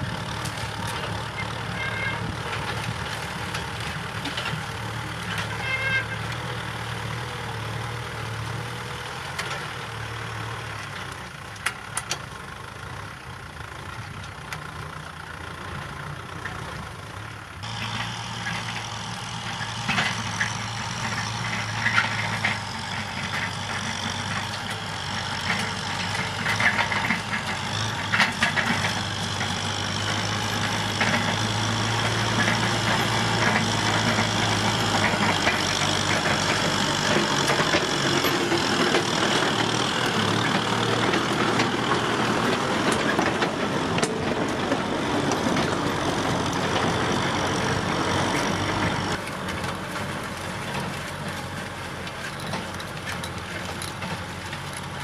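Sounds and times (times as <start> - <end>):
tractor diesel engines running: 0.0 - 55.0
metallic clanks and rattles: 19.5 - 46.9, 48.4 - 55.0.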